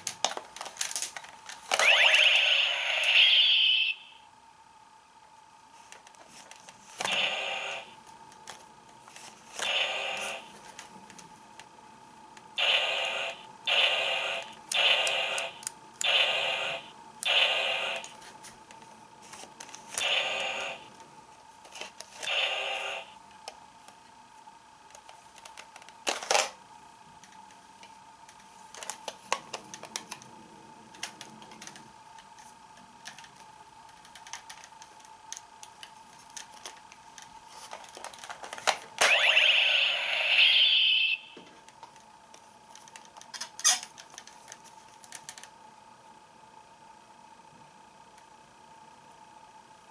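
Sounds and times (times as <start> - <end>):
faint high hum: 0.0 - 49.9
toy electronic sound effects: 1.7 - 4.2, 7.0 - 7.9, 9.6 - 10.5, 12.6 - 18.1, 20.0 - 20.9, 22.2 - 23.2, 39.0 - 41.4.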